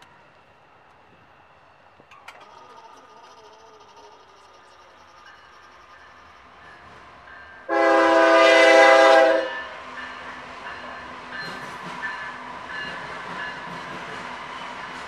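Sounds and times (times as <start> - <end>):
train rumbling and clattering by: 4.2 - 15.0
locomotive air horn blast: 7.7 - 9.6.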